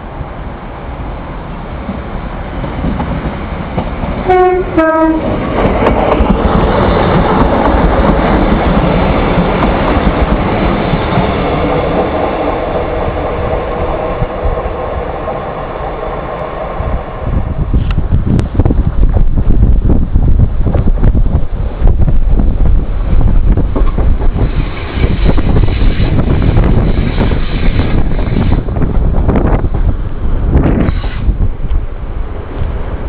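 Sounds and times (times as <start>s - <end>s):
train passing on rails: 0.0s - 33.0s
two-tone train horn: 4.2s - 5.4s.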